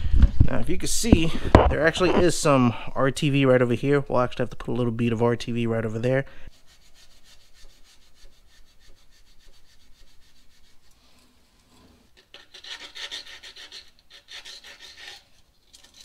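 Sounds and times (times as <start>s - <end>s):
hand scrubbing metal surface: 6.5s - 15.4s.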